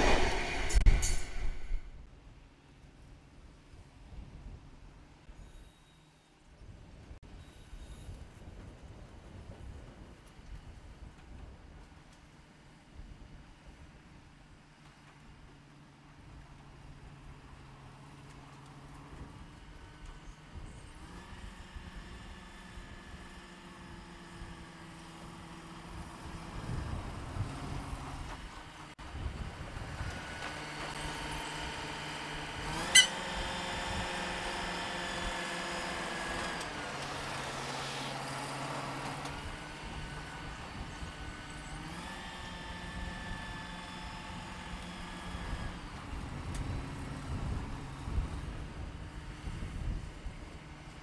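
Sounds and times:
sharp bang: 0:00.0 - 0:02.0
locomotive engines running: 0:14.8 - 0:51.0.

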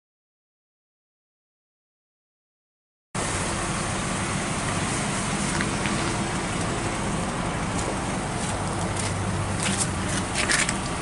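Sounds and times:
outdoor hiss: 0:03.2 - 0:08.8
car engine idling: 0:03.2 - 0:11.0.

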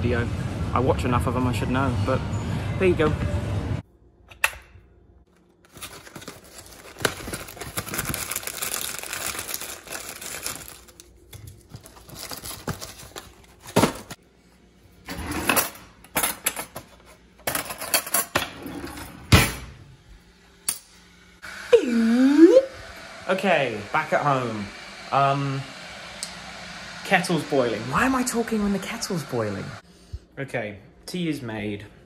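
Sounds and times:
cardboard box rustling: 0:05.7 - 0:10.5.

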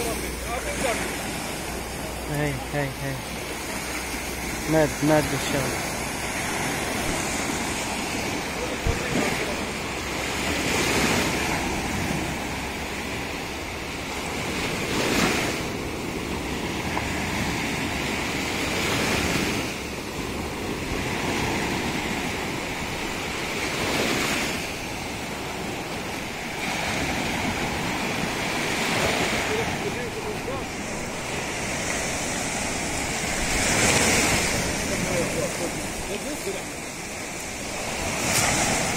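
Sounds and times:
surf breaking on shore: 0:00.0 - 0:38.9.

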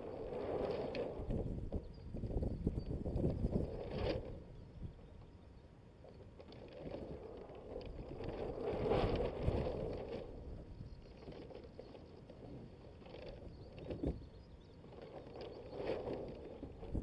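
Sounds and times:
water splashing along hull: 0:14.8 - 0:17.0.

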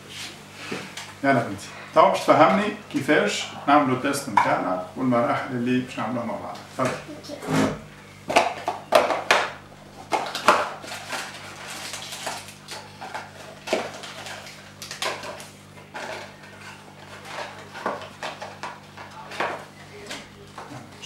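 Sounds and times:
cardboard box and packets rustling: 0:10.2 - 0:18.6.

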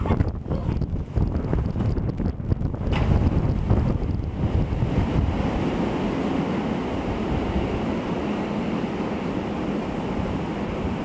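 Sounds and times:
wind buffeting microphone: 0:00.0 - 0:11.0
wind rushing through trees: 0:00.0 - 0:11.0.

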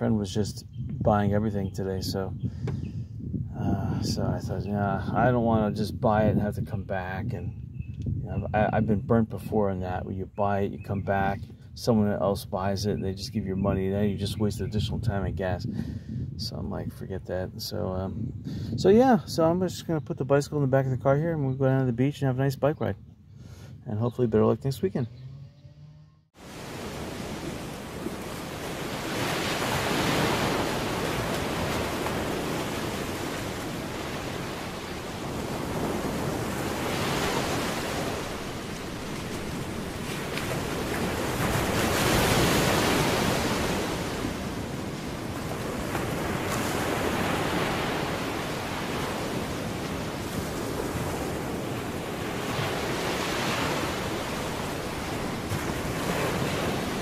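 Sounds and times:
ocean waves breaking: 0:26.4 - 0:57.0.

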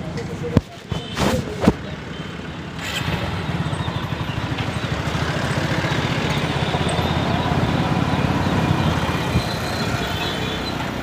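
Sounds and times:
road and wind noise: 0:00.0 - 0:11.0
small motorbike engine: 0:02.7 - 0:10.1.

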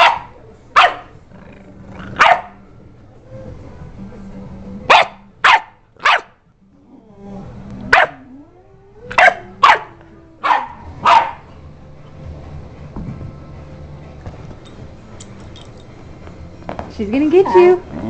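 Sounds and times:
puppy barking: 0:00.0 - 0:01.2, 0:02.2 - 0:02.6, 0:04.9 - 0:06.3, 0:07.9 - 0:08.3, 0:09.1 - 0:11.5.

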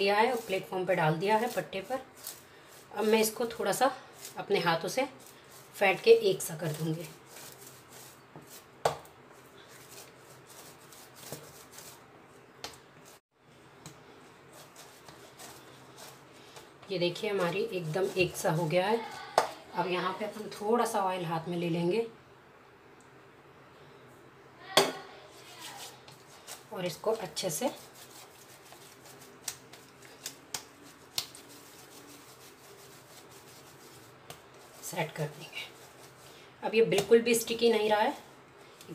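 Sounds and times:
hands rubbing clay: 0:00.0 - 0:13.2, 0:13.8 - 0:19.6, 0:25.3 - 0:37.2
hands slapping clay: 0:29.4 - 0:31.4.

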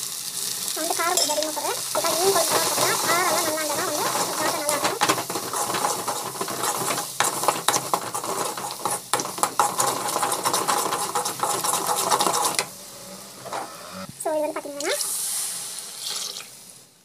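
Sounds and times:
light sizzle: 0:00.0 - 0:17.0
spoon scraping metal pan: 0:01.1 - 0:12.7.

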